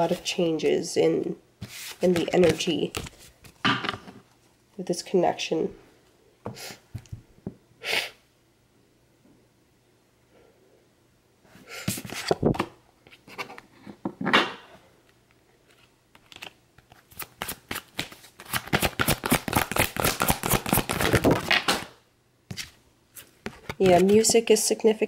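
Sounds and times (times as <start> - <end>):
cards being shuffled: 1.6 - 3.6, 15.7 - 24.4.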